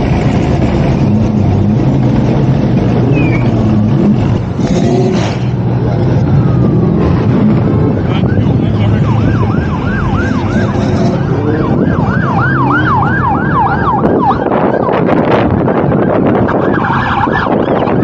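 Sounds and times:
car engines rumbling: 0.0 - 18.0
vehicle siren sweeping: 5.4 - 18.0.

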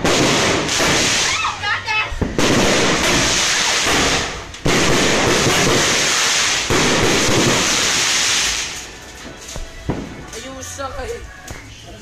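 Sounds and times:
firework hissing and crackling: 0.0 - 9.1.

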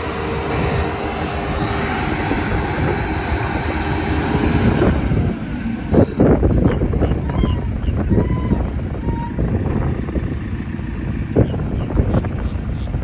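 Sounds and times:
diesel engine under load: 0.0 - 13.0.

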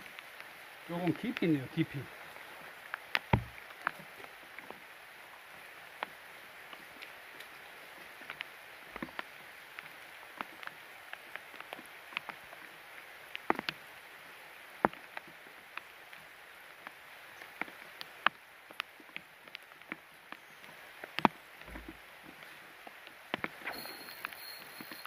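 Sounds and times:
heavy rain hissing: 0.0 - 11.3, 23.4 - 25.0
raindrops tapping close by: 0.0 - 25.0.

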